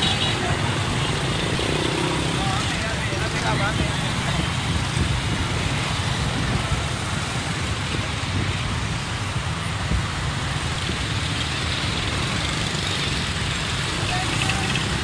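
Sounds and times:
motorcycle and car traffic: 0.0 - 15.0.

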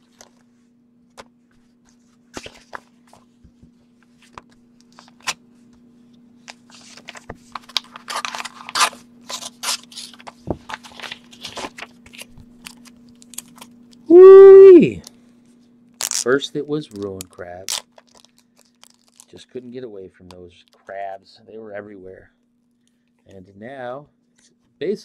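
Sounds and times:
paper and cards rustling: 1.2 - 5.4, 6.5 - 13.7, 16.2 - 19.7.

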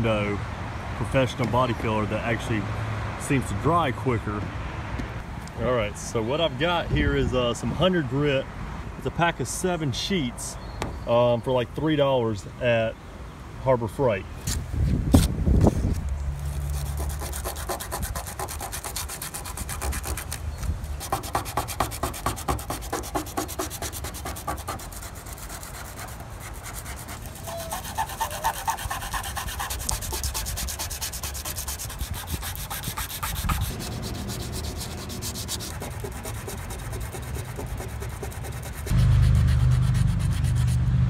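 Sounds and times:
sandpaper rubbing on metal: 15.2 - 40.9.

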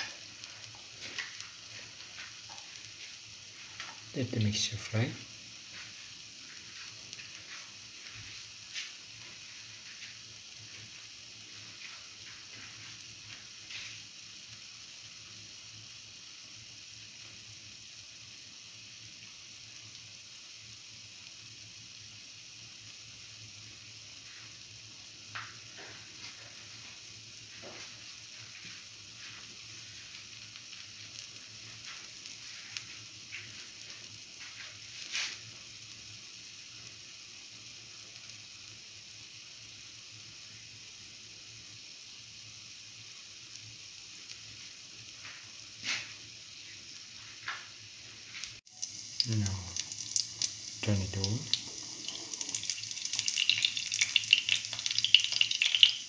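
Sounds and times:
oil pops and crackles: 0.0 - 3.1, 25.3 - 26.6, 48.4 - 56.0
batter sizzling in oil: 0.0 - 56.0.

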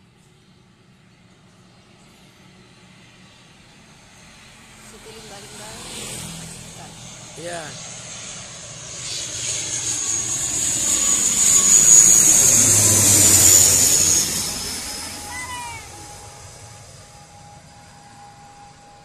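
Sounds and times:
high engine whine: 0.0 - 19.0
propeller airliner passing overhead: 0.0 - 19.0.

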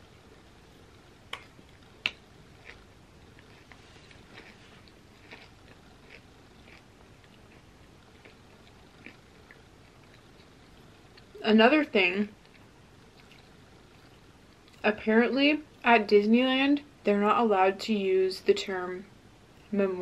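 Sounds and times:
close-up chewing: 0.9 - 11.4, 12.4 - 14.8.

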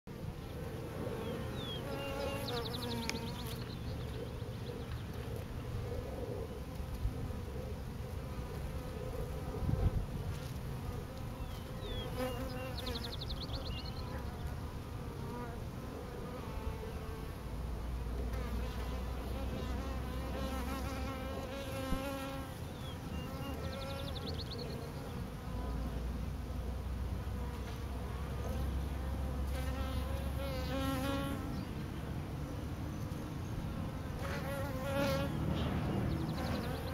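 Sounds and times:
bee swarm humming: 0.1 - 36.9
single bee buzzing past: 0.9 - 3.8, 8.2 - 31.7, 33.7 - 36.9.

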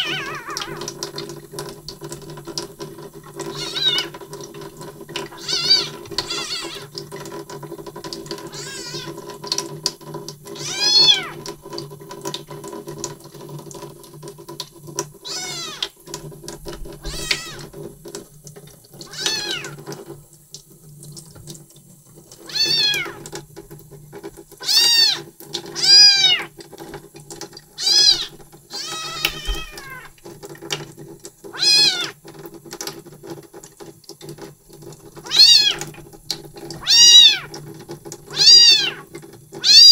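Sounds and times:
kitten mewing: 0.0 - 0.9, 3.5 - 4.1, 5.3 - 6.9, 8.5 - 9.2, 10.6 - 11.4, 15.3 - 15.9, 17.0 - 17.7, 19.1 - 19.8, 22.5 - 23.2, 25.8 - 26.5, 27.8 - 30.1, 31.5 - 32.1, 35.3 - 35.8, 36.8 - 37.5, 38.3 - 39.0, 39.6 - 39.9.

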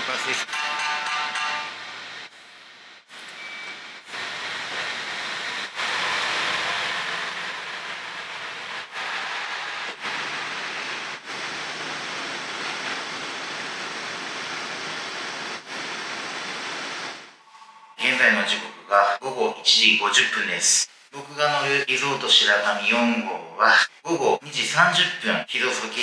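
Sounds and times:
train rushing past: 0.0 - 2.7, 4.1 - 19.2.

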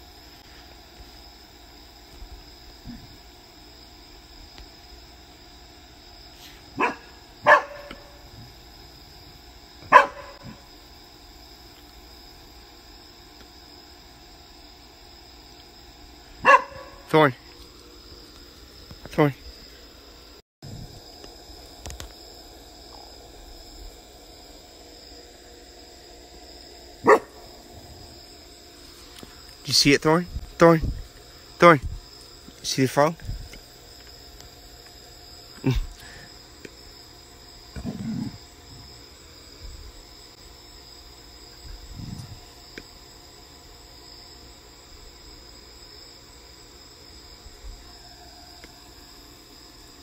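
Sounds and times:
crickets chirring: 0.0 - 50.0
high insect drone: 0.0 - 50.0
dog barking: 6.8 - 8.2, 9.9 - 10.6, 16.4 - 17.1, 27.0 - 27.4.

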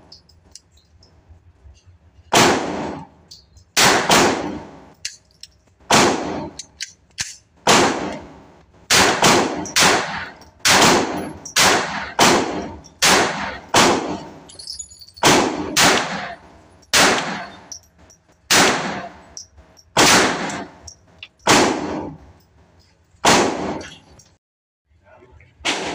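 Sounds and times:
pistol shots echoing indoors: 2.3 - 3.1, 3.8 - 4.9, 5.9 - 14.5, 15.2 - 17.6, 18.5 - 19.2, 20.0 - 20.8, 23.2 - 23.9, 25.6 - 25.9.

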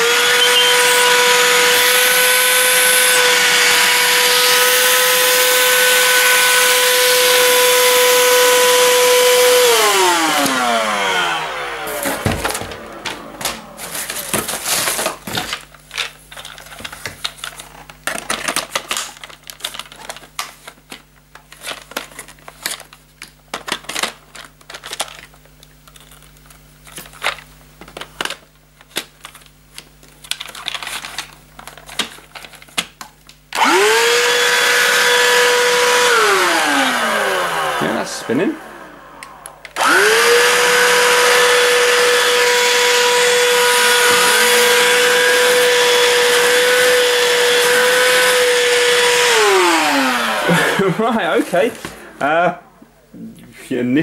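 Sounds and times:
handheld vacuum whining: 0.0 - 15.7, 33.5 - 53.0.

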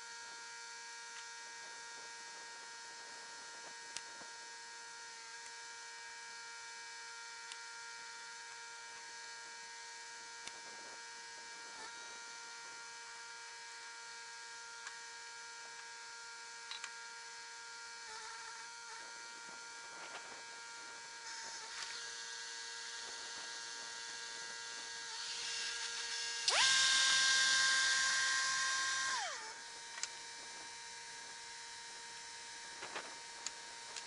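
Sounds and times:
sawmill steady hum: 0.0 - 34.0
band saw whine: 17.1 - 34.0.

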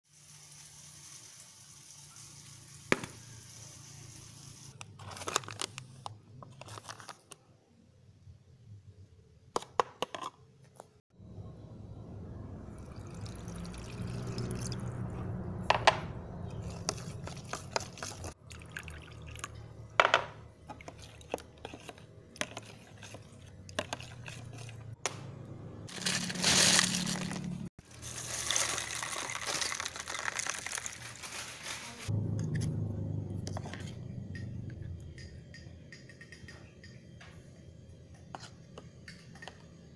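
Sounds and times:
water poured into flour: 12.8 - 14.9, 16.6 - 19.5, 27.9 - 31.2
metal spoon stirring: 16.4 - 18.4, 20.7 - 25.0.

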